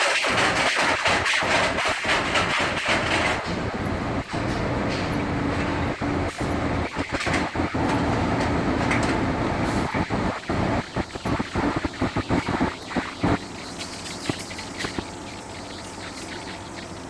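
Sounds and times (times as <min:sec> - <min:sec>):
metal cart rolling on tiles: 0:00.0 - 0:03.7
washers and dryers running: 0:00.0 - 0:17.0.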